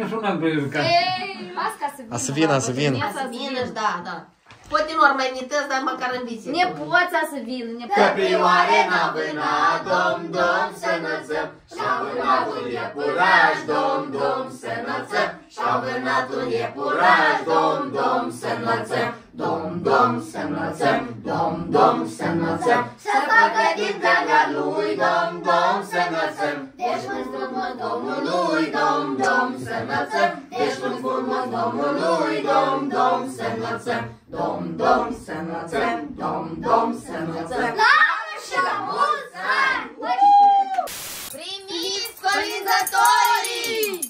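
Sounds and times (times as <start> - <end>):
group singing unaccompanied: 7.7 - 40.1, 41.7 - 44.0.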